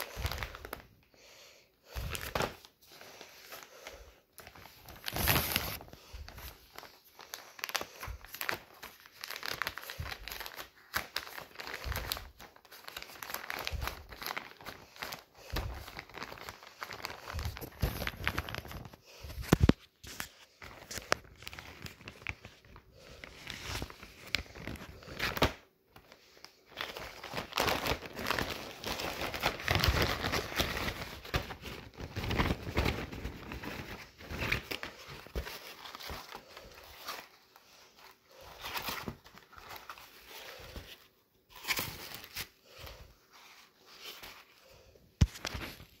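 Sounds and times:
plastic bag crinkling: 0:26.7 - 0:37.6.

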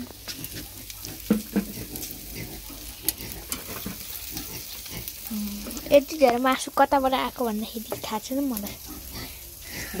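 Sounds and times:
meat sizzling on a grill: 0:00.0 - 0:10.0
fat spitting and popping: 0:00.1 - 0:05.0.

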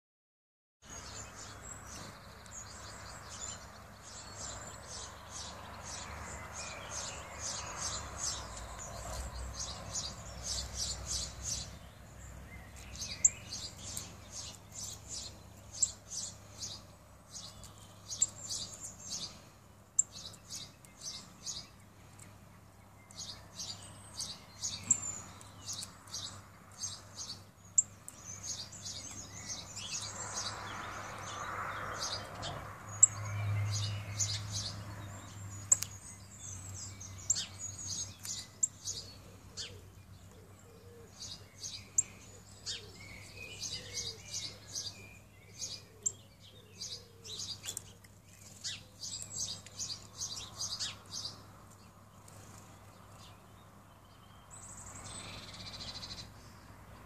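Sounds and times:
small songbirds chirping: 0:00.8 - 0:57.0.

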